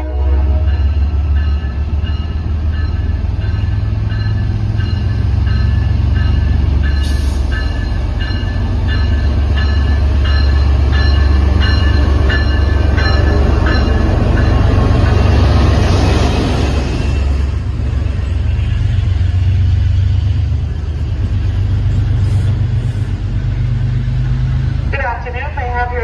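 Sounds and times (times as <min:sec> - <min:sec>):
locomotive bell ringing: 0:00.0 - 0:19.2
train rushing past: 0:00.0 - 0:26.0.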